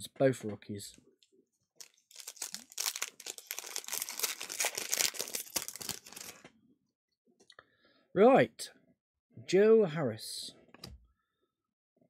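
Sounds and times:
foil wrapper crinkling: 0:01.8 - 0:06.4.

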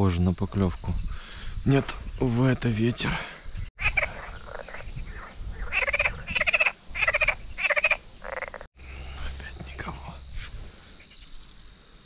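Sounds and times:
frog croaking: 0:03.8 - 0:08.7.

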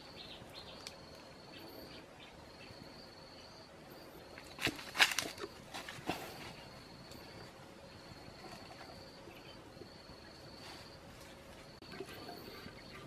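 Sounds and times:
dry twigs cracking and crunching: 0:04.4 - 0:06.1.

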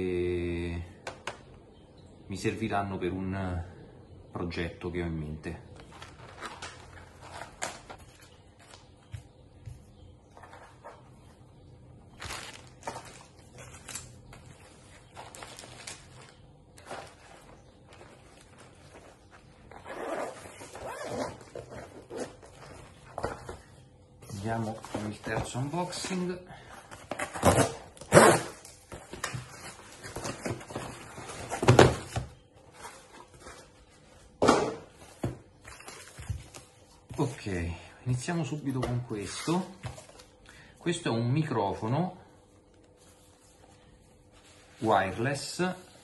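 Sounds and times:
plastic bags crinkling: 0:12.2 - 0:19.7
small tools rustling: 0:12.2 - 0:27.6
cardboard tearing: 0:27.1 - 0:28.7.

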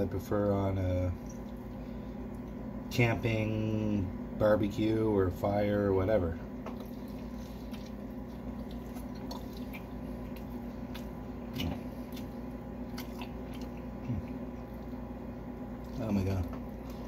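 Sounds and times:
low hum: 0:00.0 - 0:17.0
man chewing wet mouth sounds: 0:06.5 - 0:17.0.

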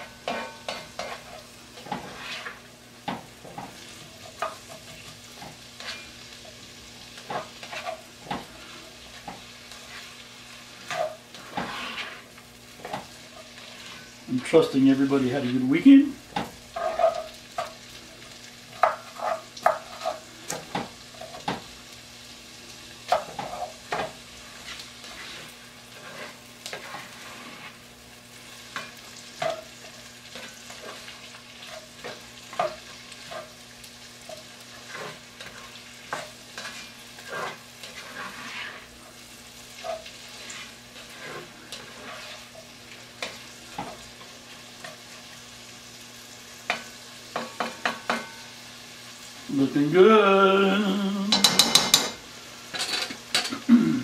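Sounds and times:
vegetables sizzling in a pot: 0:00.0 - 0:54.0
spoon scraping against pot: 0:00.3 - 0:02.6, 0:10.8 - 0:14.1, 0:16.7 - 0:17.8, 0:34.3 - 0:38.9, 0:39.8 - 0:42.5, 0:51.3 - 0:53.5.

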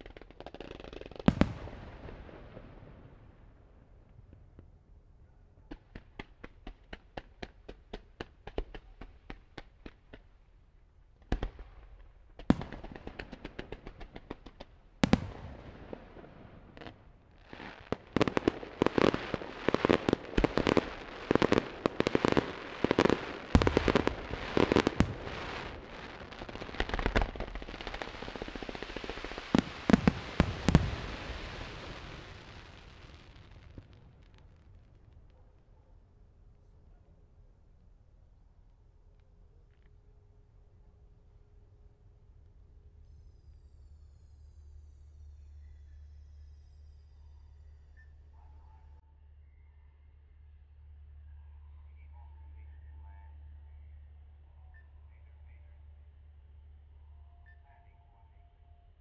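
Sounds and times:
continuous crackling: 0:12.3 - 0:36.0
firework cracks: 0:17.5 - 0:34.5.

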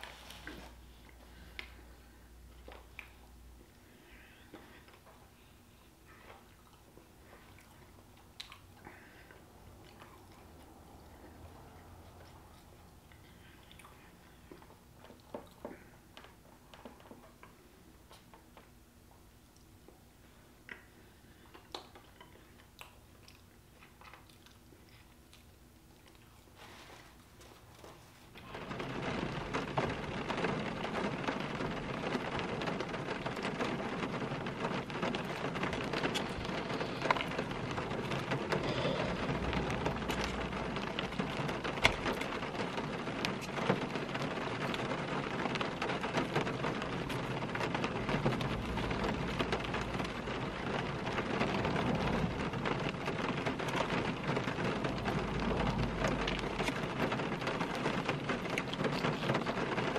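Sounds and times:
rain pattering on car roof: 0:27.8 - 0:59.9.

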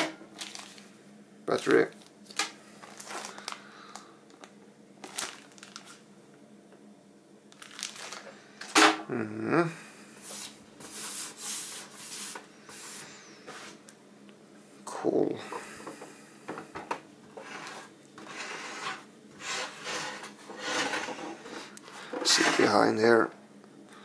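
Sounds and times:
packaging rubbing and rustling: 0:00.4 - 0:00.9, 0:01.8 - 0:06.0, 0:07.5 - 0:08.7.

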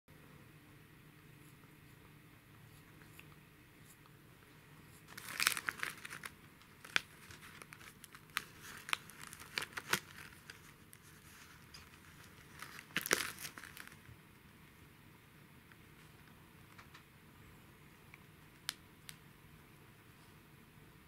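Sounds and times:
plastic packet crinkling: 0:05.0 - 0:14.1.

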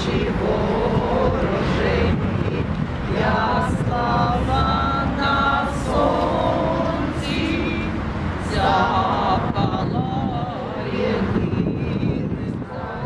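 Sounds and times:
wind rumble on microphone: 0:00.0 - 0:13.0
women singing together: 0:00.0 - 0:13.0.

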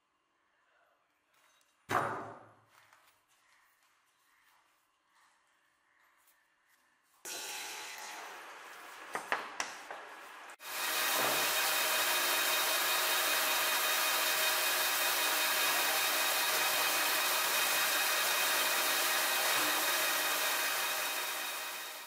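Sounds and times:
metal lathe cutting: 0:07.3 - 0:09.2, 0:10.3 - 0:22.0.

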